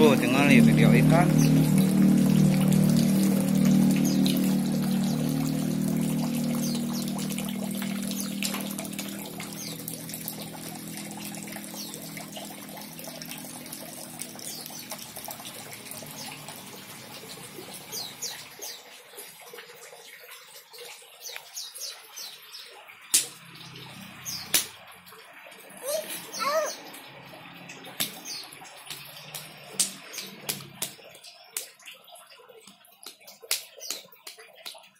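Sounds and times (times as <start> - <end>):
small birds chirping: 0.0 - 12.4, 25.8 - 27.1
low hum: 0.0 - 14.4
water trickling into pond: 0.0 - 34.9.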